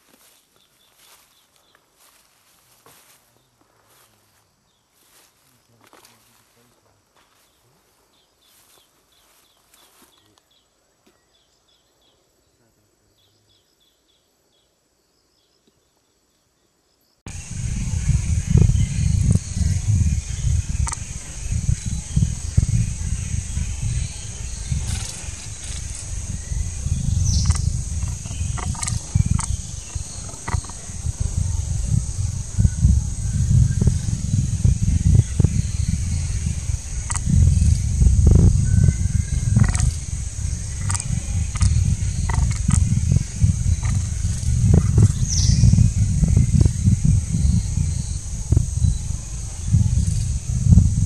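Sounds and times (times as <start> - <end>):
continuous high hiss: 0.0 - 51.0
faint natural ambience: 0.0 - 51.0
low rumble: 17.3 - 51.0
short chirps and clicks: 20.8 - 21.0, 27.3 - 30.9, 37.0 - 37.8, 40.7 - 42.9.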